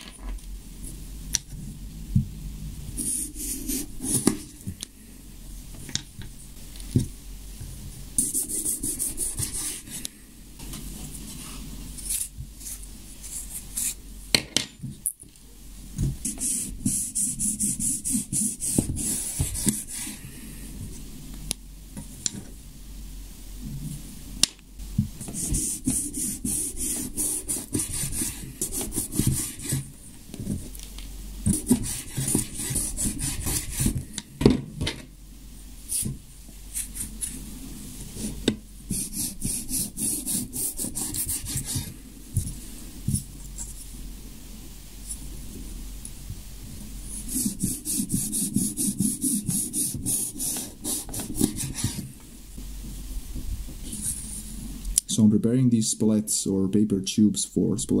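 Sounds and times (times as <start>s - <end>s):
knife sawing through paper tubes: 31.6s - 34.0s.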